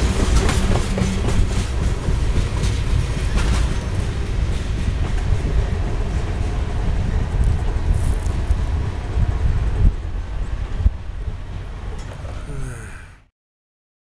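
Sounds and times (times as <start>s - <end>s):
train wheels clacking on rails: 0.0s - 10.0s
train rumble: 0.0s - 13.1s.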